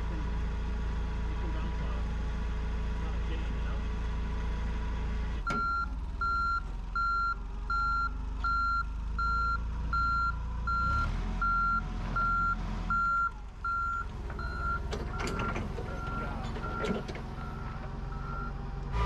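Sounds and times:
forklift engine running: 0:00.0 - 0:19.0
forklift backup alarm beeping: 0:05.4 - 0:19.0.

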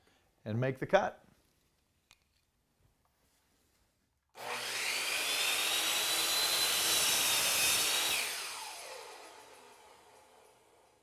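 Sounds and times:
miter saw cutting wood: 0:04.4 - 0:11.0.

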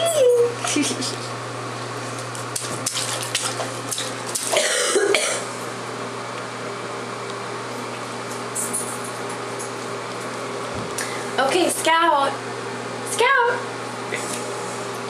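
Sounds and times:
steady low hum: 0:00.0 - 0:15.0
hands splashing bathwater: 0:02.2 - 0:04.6
throaty cough-like vocal sound: 0:04.5 - 0:05.5.

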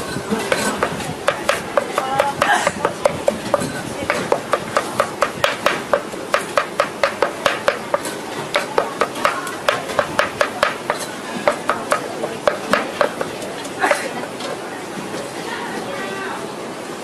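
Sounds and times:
cleaver chopping on a block: 0:00.5 - 0:13.3.

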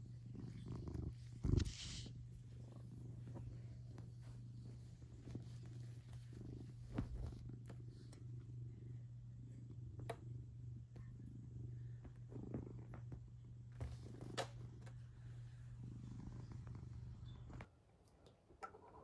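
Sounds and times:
cat purring: 0:00.0 - 0:17.7.

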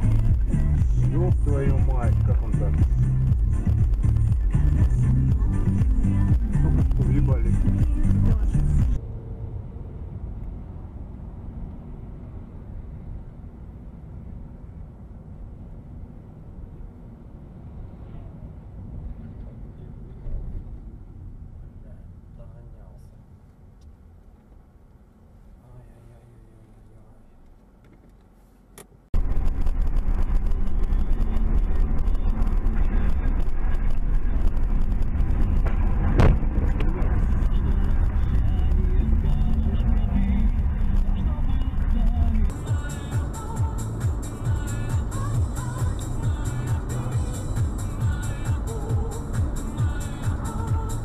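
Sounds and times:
car road and engine rumble: 0:00.0 - 0:51.0
thump: 0:35.7 - 0:36.9.

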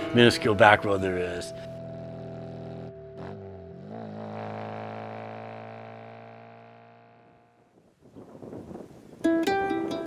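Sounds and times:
low droning chord music: 0:00.0 - 0:07.7.

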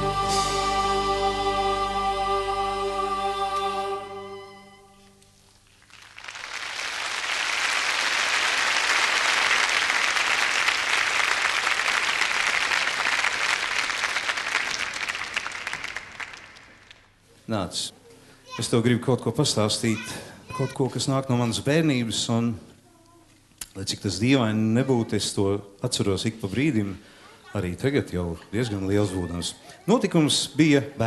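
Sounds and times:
boys' choir singing chord: 0:00.0 - 0:05.0
audience applauding: 0:05.6 - 0:17.2.

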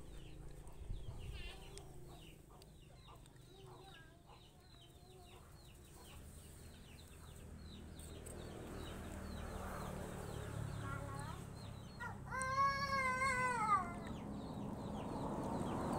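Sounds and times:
chickens clucking: 0:00.1 - 0:07.4.

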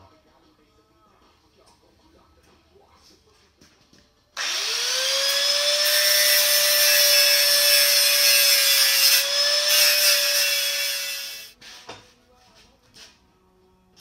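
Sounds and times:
power tool motor whine: 0:04.4 - 0:11.5.

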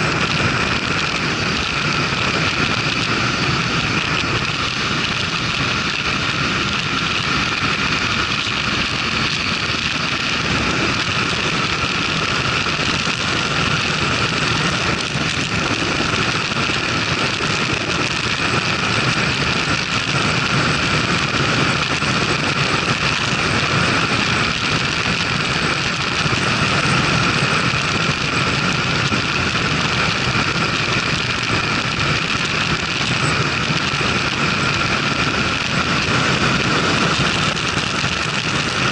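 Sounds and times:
motorcycle engine running: 0:00.0 - 0:38.9
wind rushing on microphone: 0:00.0 - 0:38.9.

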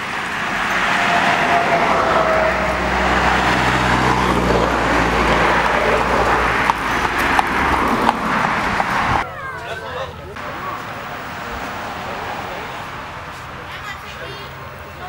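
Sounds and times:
traffic passing close by: 0:00.0 - 0:15.0
truck engine hum: 0:00.0 - 0:15.0.

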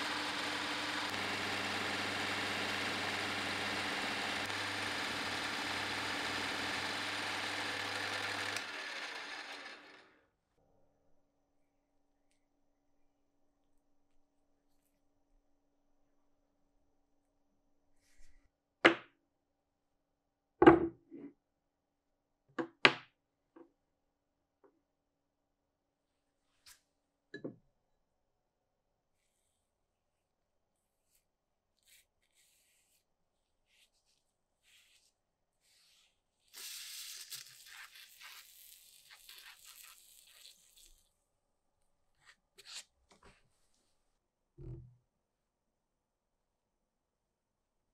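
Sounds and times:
brush strokes on metal: 0:31.8 - 0:36.2
liquid spray hissing: 0:36.6 - 0:41.0.

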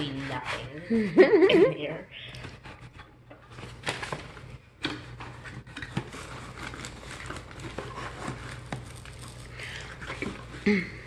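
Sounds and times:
cardboard scraping and rustling: 0:02.6 - 0:10.5.

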